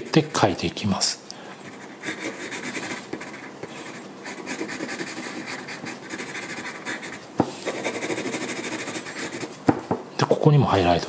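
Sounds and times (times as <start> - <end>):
pencil scratching on paper: 1.6 - 9.6.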